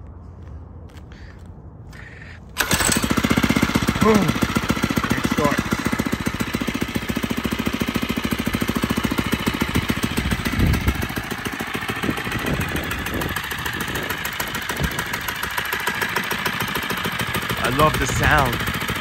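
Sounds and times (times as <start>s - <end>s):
small engine idling: 2.0s - 19.0s.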